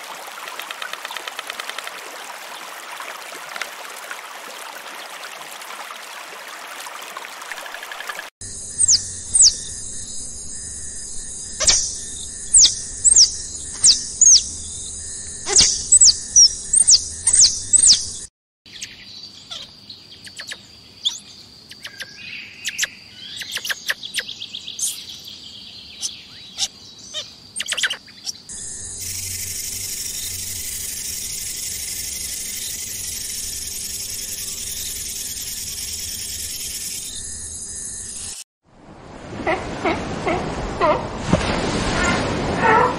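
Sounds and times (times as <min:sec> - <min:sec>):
high-pitched insect drone: 0:08.4 - 0:17.8, 0:28.5 - 0:38.4
birds chirping: 0:08.6 - 0:38.4.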